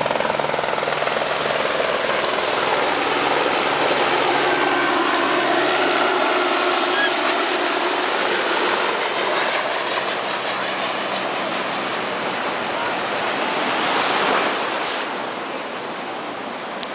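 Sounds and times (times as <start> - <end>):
helicopter engine and rotor hum: 0.0 - 16.9
surf breaking in shallows: 12.6 - 15.3.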